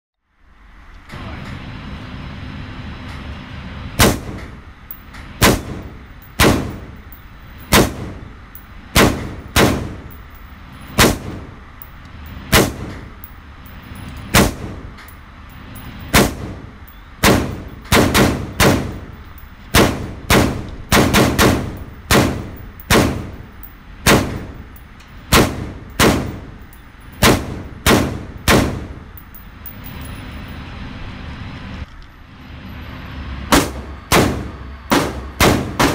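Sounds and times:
fan-like hum: 0.2s - 35.9s.

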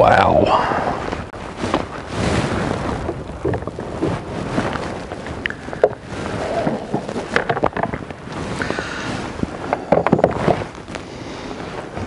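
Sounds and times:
wind on microphone: 0.0s - 12.0s
small knocks: 5.4s - 8.2s, 9.7s - 10.7s.

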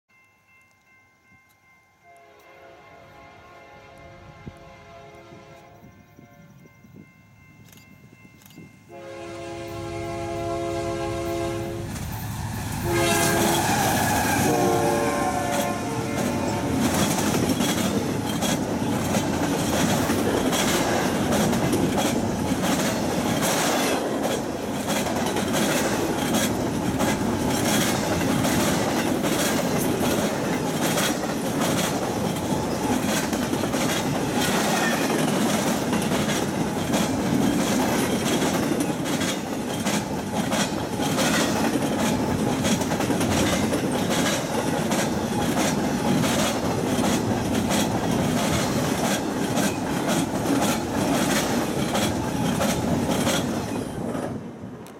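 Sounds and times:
locomotive horn blasts: 2.1s - 6.6s, 8.9s - 12.0s, 12.8s - 17.0s
train cars rumbling by: 8.8s - 54.9s
wheels clicking over rail joints: 15.4s - 54.9s.

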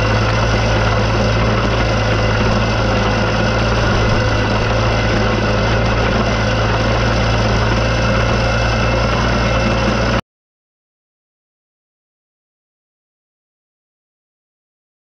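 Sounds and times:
digging chain cutting soil: 0.0s - 10.2s
trencher engine running: 0.0s - 10.2s.

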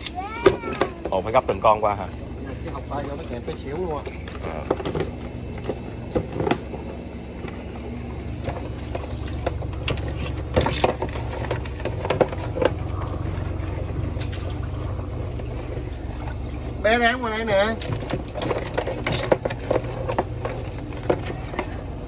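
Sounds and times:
low motor hum: 0.0s - 22.0s.

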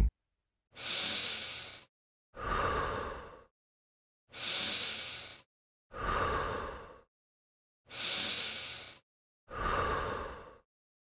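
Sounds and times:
person breathing deeply: 0.8s - 3.5s, 4.3s - 7.1s, 7.9s - 10.7s.

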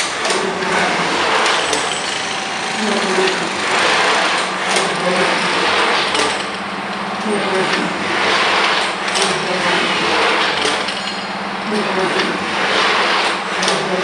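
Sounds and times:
motors whirring: 1.4s - 6.6s.

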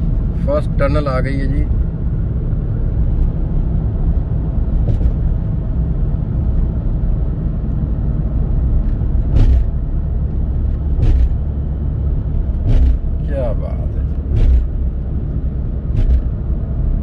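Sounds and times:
road and engine rumble: 0.0s - 17.0s
brief knocks: 11.0s - 11.4s, 12.6s - 13.1s, 14.3s - 14.8s.

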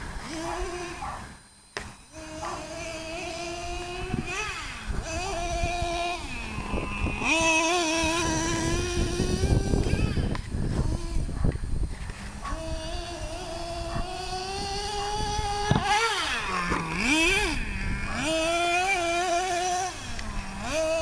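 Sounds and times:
rc car engine buzzing: 0.0s - 21.0s.

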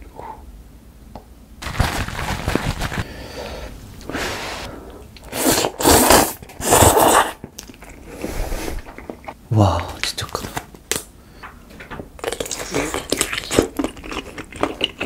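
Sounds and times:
slurping noodles: 4.1s - 7.4s.

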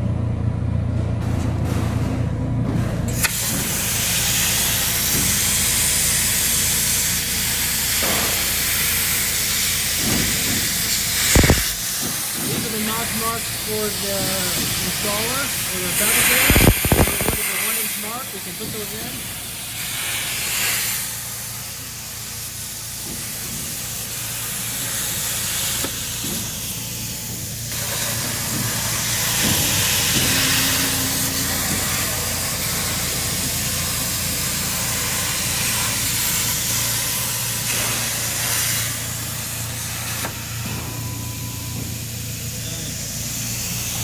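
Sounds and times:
plasma torch arc hissing: 3.1s - 44.0s
low hum: 28.3s - 34.2s.

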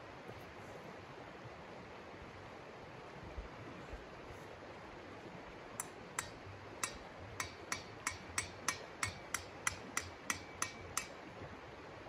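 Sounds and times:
sharp knocks with metallic ring: 5.8s - 11.2s.

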